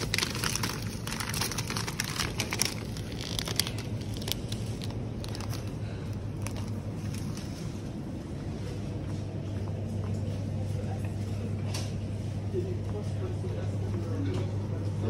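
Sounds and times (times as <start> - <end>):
crinkling rustling clicks: 0.0 - 7.7
steady low hum: 0.0 - 15.0.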